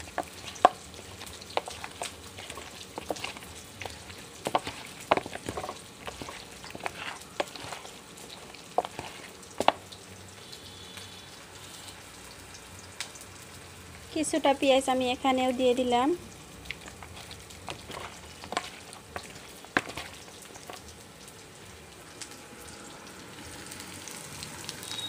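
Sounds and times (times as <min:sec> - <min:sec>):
wet squishing of raw chicken: 0:00.0 - 0:11.0, 0:16.2 - 0:21.6.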